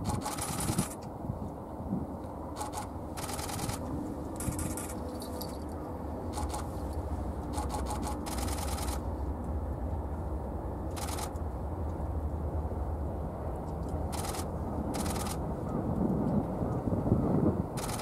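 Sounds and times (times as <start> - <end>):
camera shutters clicking rapidly: 0.0 - 1.0, 2.6 - 3.8, 4.4 - 5.0, 6.3 - 6.7, 7.5 - 9.0, 10.9 - 11.4, 14.1 - 15.4, 17.8 - 18.0.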